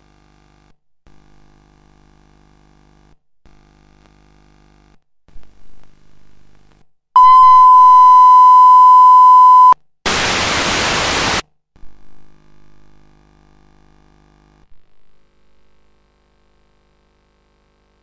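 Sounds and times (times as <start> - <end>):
faint hum: 7.2 - 11.4
loud steady test tone: 7.2 - 11.4
static hiss: 9.5 - 11.4.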